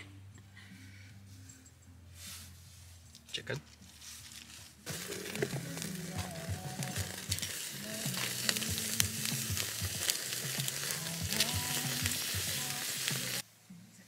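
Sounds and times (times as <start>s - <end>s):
kebabs sizzling: 3.9s - 13.5s
campfire crackling and popping: 4.4s - 13.4s.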